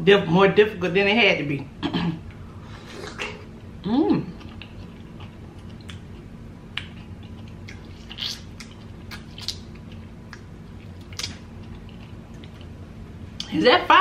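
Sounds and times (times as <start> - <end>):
faint steady hum: 0.0 - 14.0
wet biting and chewing: 4.3 - 12.8.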